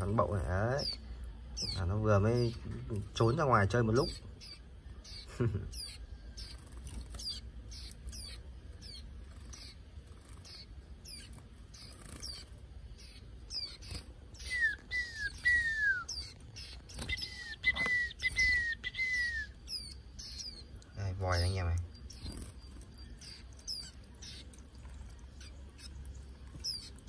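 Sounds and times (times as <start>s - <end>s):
birds chirping: 0.0s - 27.0s
whistled downward notes: 14.4s - 16.3s, 17.0s - 19.6s.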